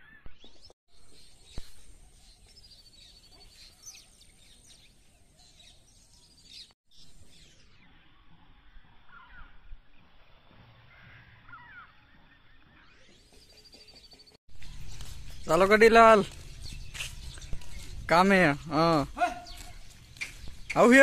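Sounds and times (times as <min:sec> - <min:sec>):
birds chirping and calling: 0:00.0 - 0:21.0.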